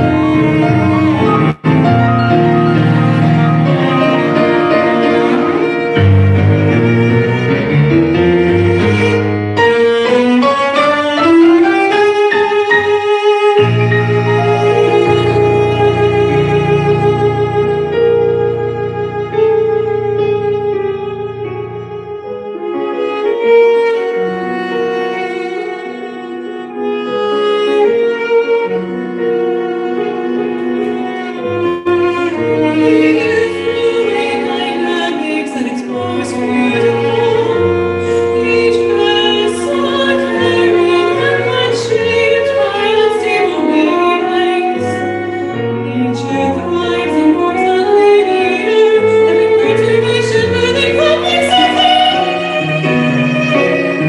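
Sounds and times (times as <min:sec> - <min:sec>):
cello bowing sustained notes: 0:00.0 - 0:54.0
keyboard chords: 0:00.0 - 0:54.0
soprano singing operatically: 0:32.2 - 0:54.0.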